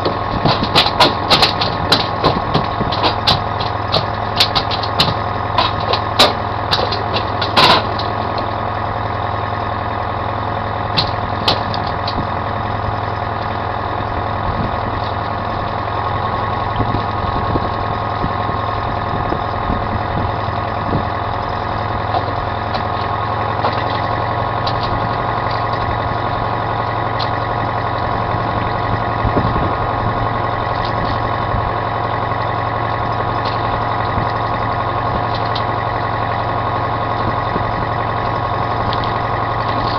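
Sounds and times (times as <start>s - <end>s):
sharp clicks and knocks: 0.0s - 8.6s, 10.9s - 12.3s, 21.4s - 26.0s, 35.2s - 35.7s
inboard boat engine running: 0.0s - 39.9s.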